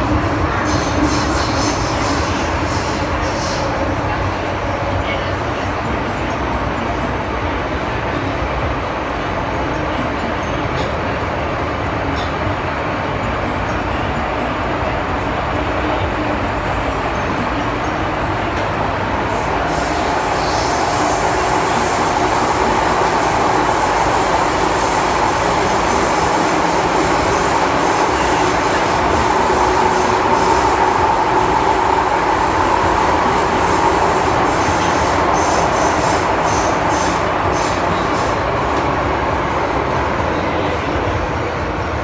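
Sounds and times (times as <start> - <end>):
train wheels rumbling on rail: 0.0 - 42.0
steady high tone: 12.9 - 42.0.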